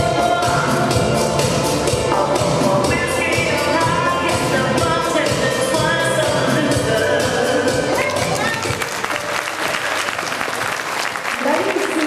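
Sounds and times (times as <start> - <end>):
dance music with singing: 0.0 - 9.3.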